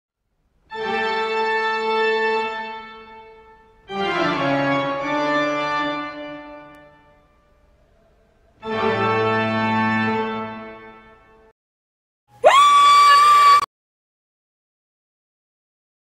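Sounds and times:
organ chords: 0:00.7 - 0:11.4.

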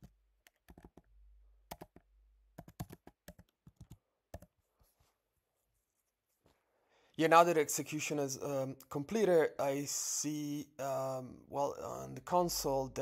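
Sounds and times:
typing on computer keyboard: 0:00.0 - 0:01.1, 0:01.7 - 0:02.0, 0:02.6 - 0:04.5.

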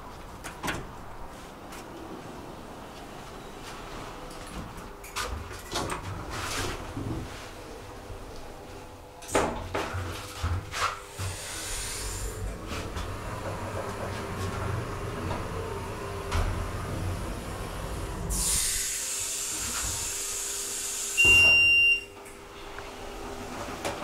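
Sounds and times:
hiss: 0:11.1 - 0:12.4, 0:18.3 - 0:21.2.

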